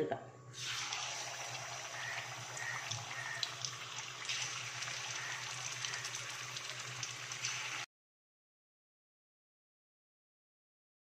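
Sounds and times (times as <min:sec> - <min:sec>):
chicken frying in oil: 0:00.6 - 0:07.9.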